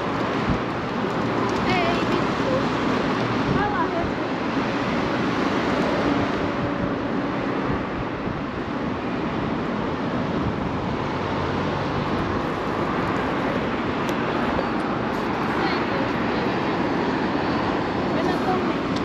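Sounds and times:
road traffic: 0.0s - 19.0s
wind on microphone: 0.0s - 19.0s.

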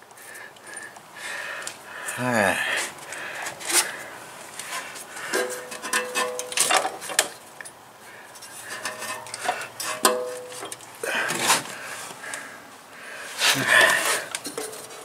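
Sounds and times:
metal clunks and scraping: 4.6s - 7.4s, 8.4s - 11.8s, 13.5s - 15.0s.

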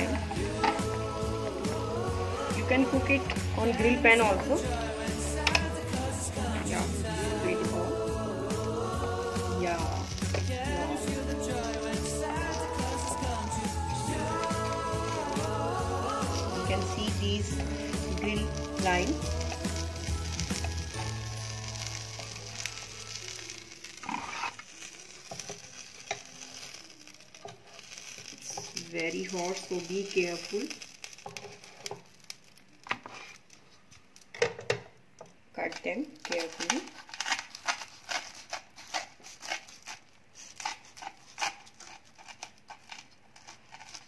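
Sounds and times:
sandwiches sizzling: 0.0s - 44.0s
spatula scraping: 6.5s - 33.6s, 36.2s - 44.0s
knife sawing toasted bread: 37.2s - 44.0s.

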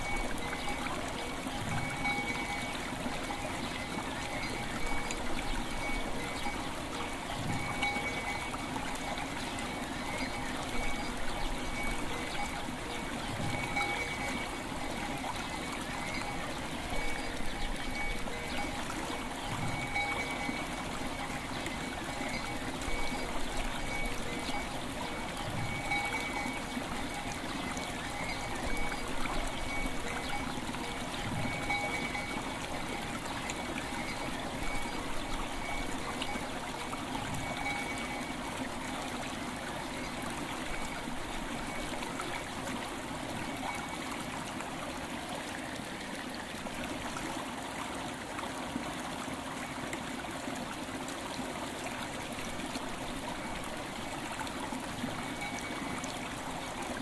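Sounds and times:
soft bell tones ringing: 0.0s - 2.8s, 7.4s - 12.6s, 13.4s - 15.2s, 16.0s - 36.5s, 37.3s - 38.4s, 55.2s - 56.0s
river water flowing: 0.0s - 57.0s.

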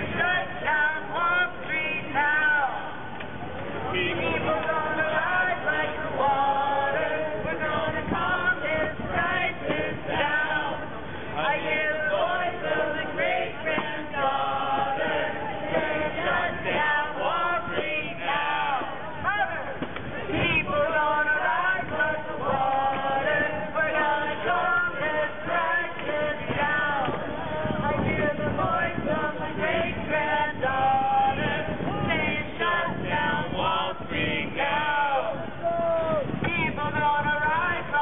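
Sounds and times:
group singing in unison: 0.0s - 38.0s.

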